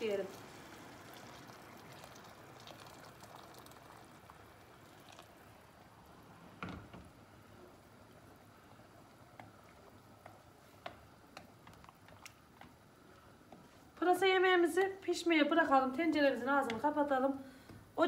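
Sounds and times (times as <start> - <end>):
water pouring into a pot: 0.0 - 6.4
wooden spoon stirring: 7.6 - 14.2.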